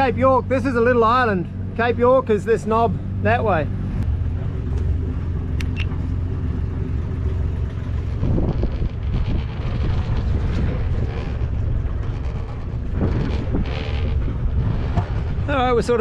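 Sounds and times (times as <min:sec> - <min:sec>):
diesel engine running: 0:00.0 - 0:16.0
wind buffeting the microphone: 0:03.8 - 0:16.0.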